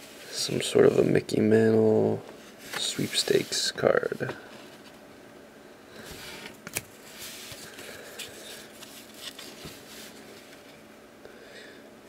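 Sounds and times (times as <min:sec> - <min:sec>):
cardboard cards rustling and sliding: 0:06.0 - 0:10.8.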